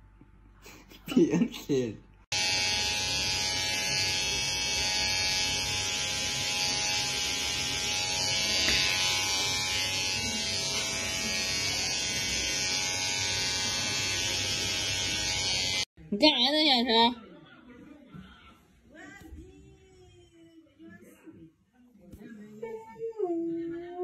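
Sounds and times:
hair clipper buzzing: 2.3 - 15.9.

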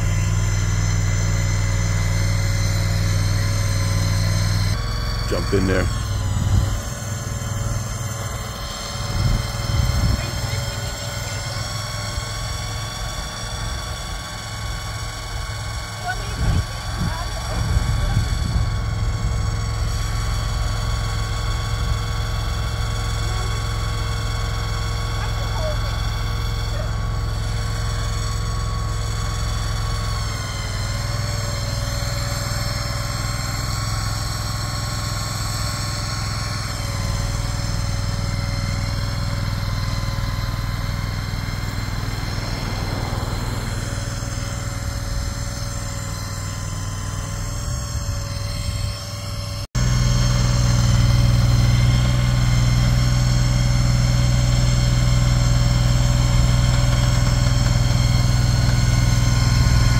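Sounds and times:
shed mover engine running: 0.0 - 59.9.

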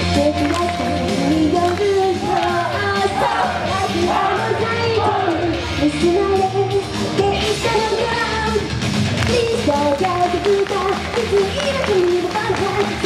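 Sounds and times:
loud backing track: 0.0 - 13.0.

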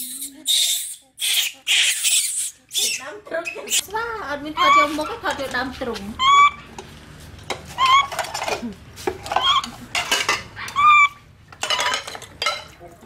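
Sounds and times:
baby monkey high calls: 0.0 - 3.9, 4.6 - 5.2, 6.2 - 6.7, 7.8 - 8.2, 9.4 - 9.7, 10.6 - 11.3.

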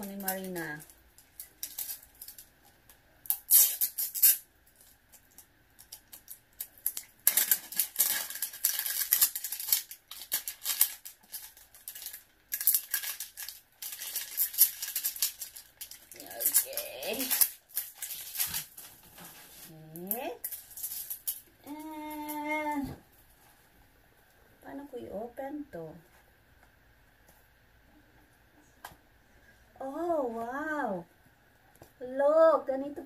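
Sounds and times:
packaging torn and crinkled: 0.0 - 2.5, 3.2 - 22.4.

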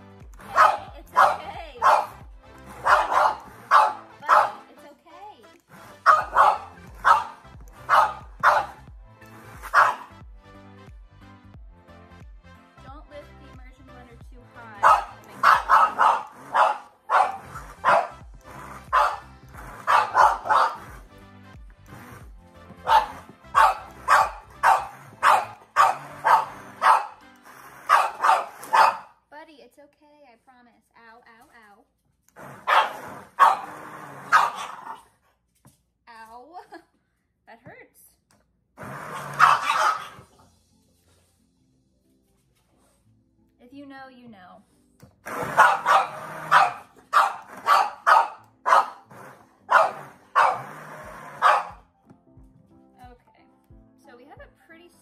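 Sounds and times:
dog barking: 0.4 - 4.6, 6.0 - 8.8, 9.6 - 10.1, 14.8 - 18.2, 18.9 - 20.9, 22.8 - 27.2, 27.9 - 29.2, 32.6 - 35.1, 39.1 - 40.3, 45.3 - 49.1, 49.7 - 51.8.

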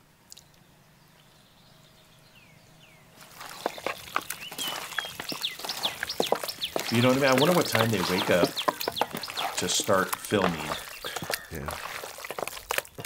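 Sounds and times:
birds chirping: 0.0 - 13.0
hands mixing wet meat: 3.2 - 13.0.

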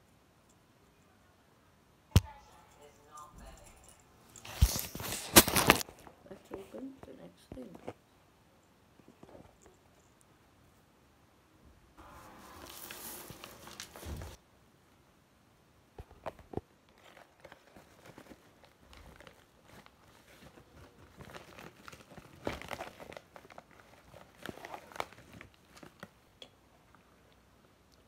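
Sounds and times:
paper bag crinkling: 4.4 - 6.1, 12.1 - 14.4, 16.9 - 26.1.

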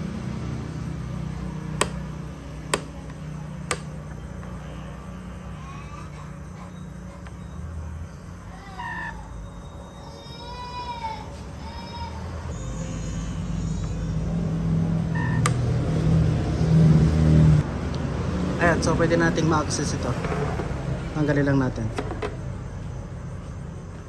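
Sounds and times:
steady low hum: 0.0 - 24.0
mirror actuator clicks: 1.8 - 4.6, 15.4 - 15.7
faint high chirps: 4.6 - 10.9, 12.4 - 15.5.

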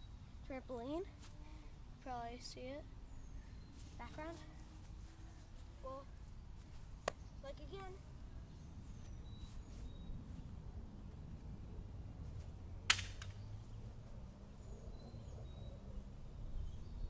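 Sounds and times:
faint bird chirps: 2.6 - 6.5, 7.2 - 10.6, 14.5 - 17.0
sharp impact crack: 12.9 - 13.4.

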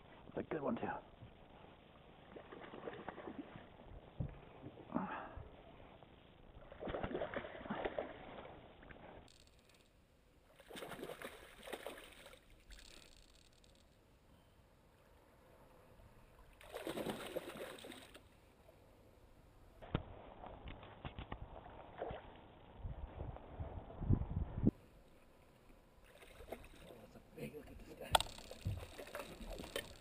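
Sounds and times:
water splashing: 2.2 - 3.7, 6.6 - 9.0, 10.5 - 13.0, 16.4 - 18.2, 26.0 - 27.1, 28.2 - 30.0.

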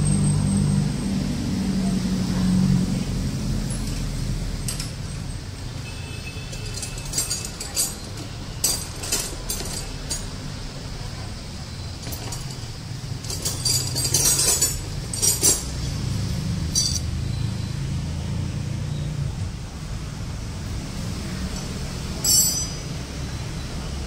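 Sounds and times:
small metal parts clinking: 3.7 - 5.2, 6.5 - 10.4, 12.0 - 17.1, 21.5 - 22.8.

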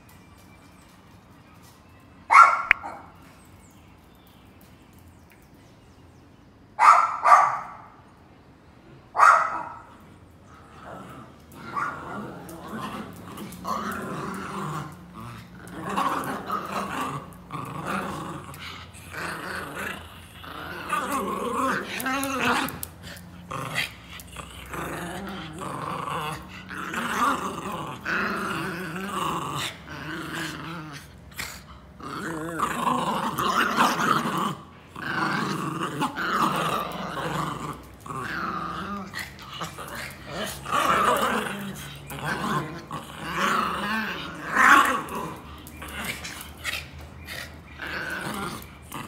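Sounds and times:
dogs growling: 9.8 - 49.0.

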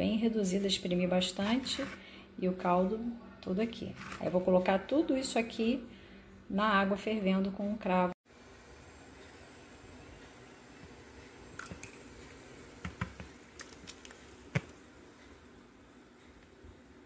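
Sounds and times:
water boiling hiss: 8.3 - 17.0.

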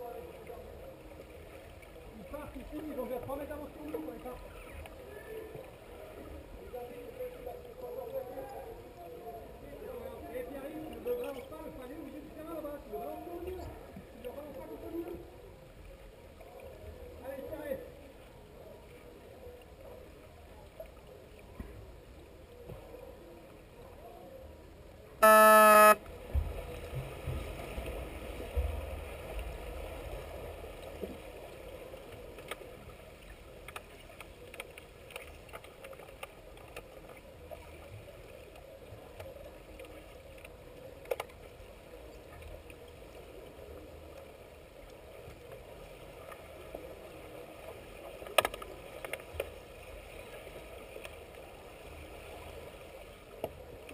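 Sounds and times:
buzzer steady tone: 25.2 - 26.0
water rumbling past microphone: 26.0 - 53.9
faint clicks: 33.6 - 36.9, 48.2 - 49.5.

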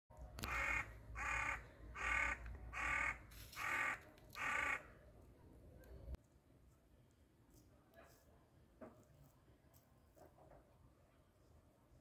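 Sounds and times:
crow cawing: 0.4 - 4.9.

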